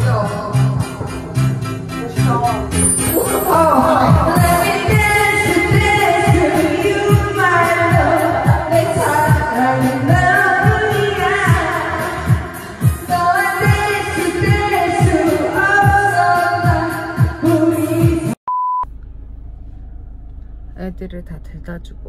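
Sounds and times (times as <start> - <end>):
karaoke backing track: 0.0 - 18.4
woman singing into microphone: 3.2 - 18.4.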